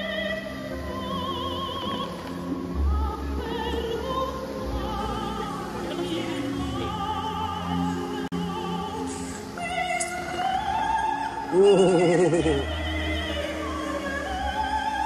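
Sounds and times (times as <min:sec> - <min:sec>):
operatic voice singing: 0:03.1 - 0:15.0.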